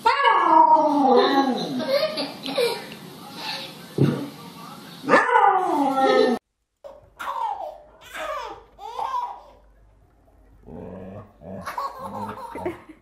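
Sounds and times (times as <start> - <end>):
dog growling low: 10.6 - 12.4.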